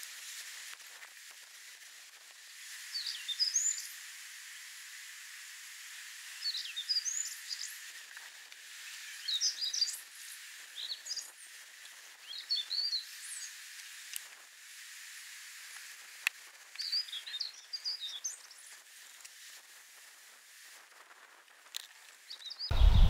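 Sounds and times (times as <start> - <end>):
steady outdoor hiss: 0.0 - 23.0
songbird singing: 22.4 - 23.0.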